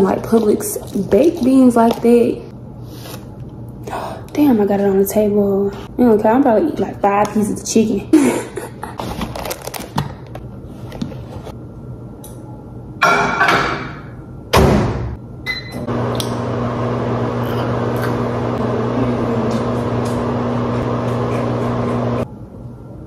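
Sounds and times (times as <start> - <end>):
microwave humming: 14.4 - 22.8.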